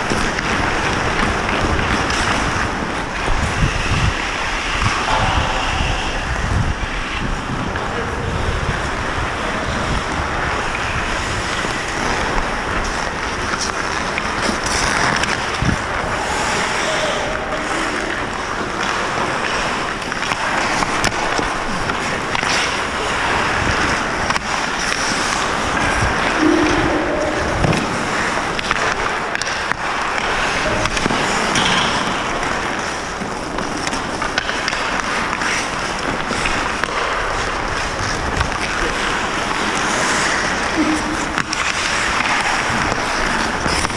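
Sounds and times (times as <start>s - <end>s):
ice skate blades scraping: 0.0s - 7.7s, 8.6s - 43.9s
wind rushing over microphone: 0.0s - 13.5s, 15.3s - 20.0s, 25.4s - 29.3s
sticks and puck clacking: 0.0s - 43.9s.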